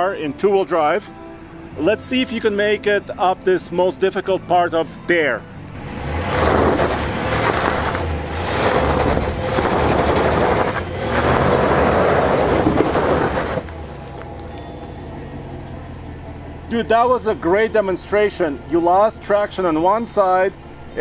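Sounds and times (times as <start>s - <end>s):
truck engine revving hard: 5.8s - 14.5s
tyre spinning on dirt and gravel: 6.2s - 14.6s.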